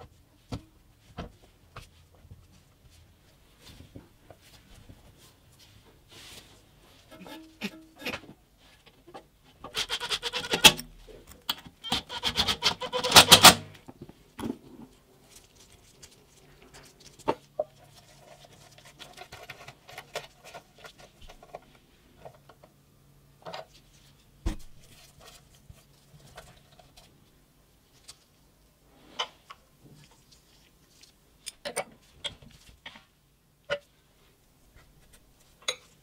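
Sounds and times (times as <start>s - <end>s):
metal fittings clicking and scraping: 9.7s - 13.5s.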